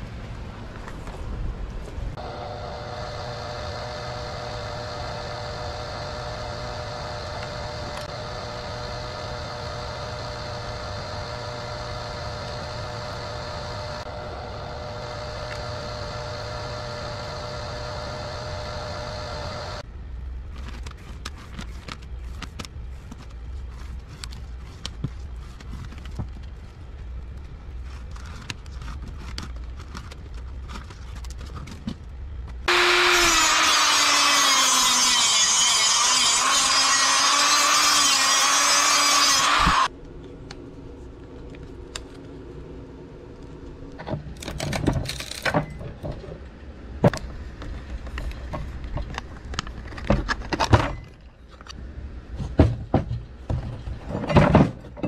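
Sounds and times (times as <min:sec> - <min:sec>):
wire stripping machine motor hum: 0:02.2 - 0:19.8, 0:32.7 - 0:39.9
clicks and rustles of wire: 0:20.5 - 0:32.6.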